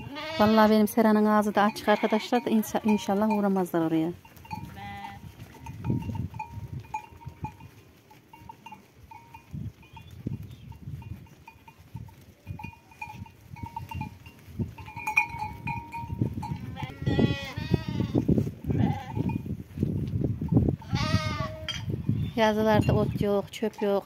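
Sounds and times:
sheep bleating loudly: 0.0s - 0.8s, 1.7s - 3.0s, 4.7s - 5.2s, 16.6s - 19.2s, 20.8s - 21.7s
flock of sheep moving: 0.0s - 24.0s
small bell clinking: 4.2s - 10.1s, 10.7s - 16.7s.

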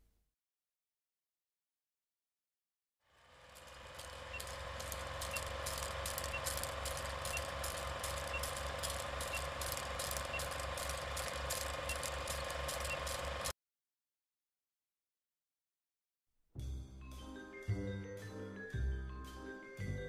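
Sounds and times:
film projector clattering: 3.3s - 13.5s.

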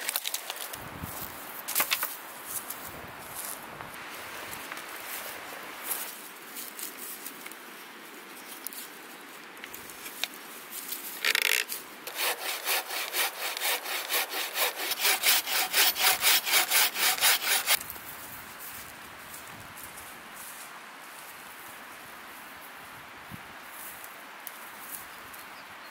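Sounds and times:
hand saw cutting branch: 11.2s - 17.8s.

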